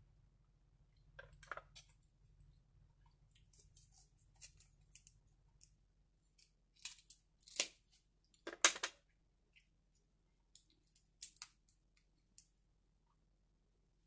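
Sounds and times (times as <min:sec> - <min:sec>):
shears cracking crab shells: 0:06.4 - 0:07.9, 0:10.9 - 0:11.6.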